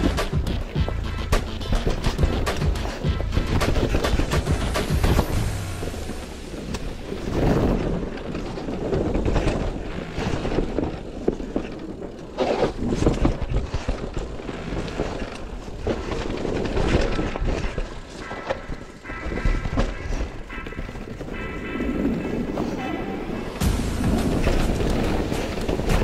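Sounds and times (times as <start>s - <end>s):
bike knocking and rattling: 0.0s - 26.0s
tyres rumbling over dirt: 0.0s - 26.0s
faint music: 12.5s - 26.0s.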